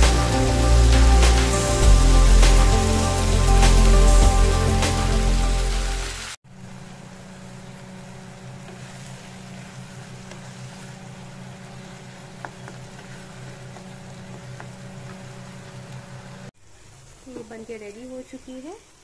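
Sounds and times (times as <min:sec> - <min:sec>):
low hum: 0:00.0 - 0:16.4
chutney sizzling in frying pan: 0:00.0 - 0:19.0
wooden spatula tapping pan: 0:12.2 - 0:15.9.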